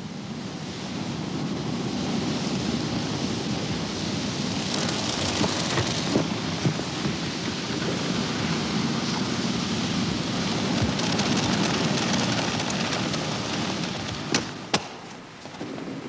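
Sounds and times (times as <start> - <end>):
molten iron hissing and crackling: 0.6 - 14.8
sharp cracks: 10.8 - 15.7.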